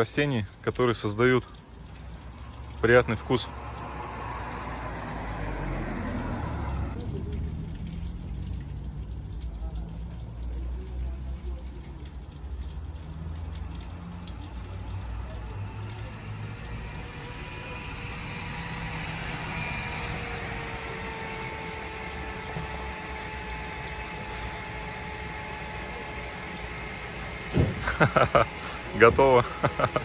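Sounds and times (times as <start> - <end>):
motor vehicle rumble: 0.0 - 30.0.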